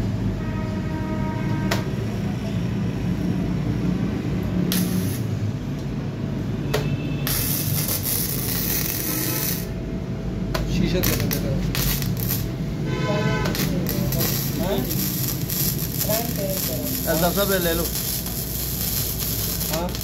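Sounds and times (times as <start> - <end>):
welding arc crackling and hissing: 4.5 - 5.4, 7.2 - 9.8, 10.9 - 12.6, 13.5 - 20.0.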